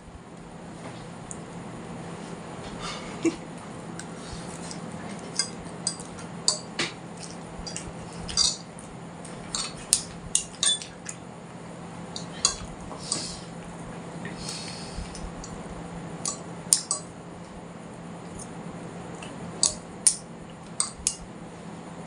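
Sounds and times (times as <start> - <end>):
cutlery clinking against dishes: 7.7 - 8.6, 9.5 - 11.2, 12.2 - 12.7.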